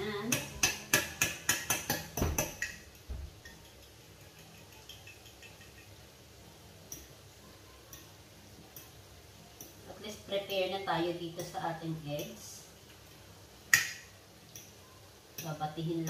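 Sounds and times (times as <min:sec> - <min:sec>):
fork clinking against ceramic dish: 0:03.4 - 0:05.9.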